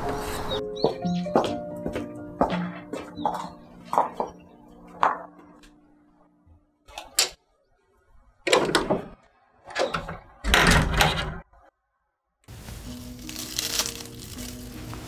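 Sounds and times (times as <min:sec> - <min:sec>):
background music: 0:00.0 - 0:06.6, 0:12.5 - 0:15.0.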